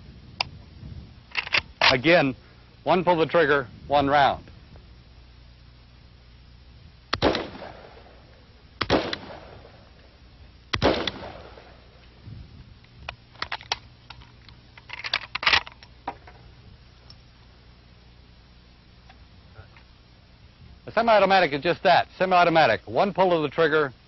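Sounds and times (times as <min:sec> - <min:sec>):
rifle shots with echo: 0:07.1 - 0:10.0, 0:10.7 - 0:12.0.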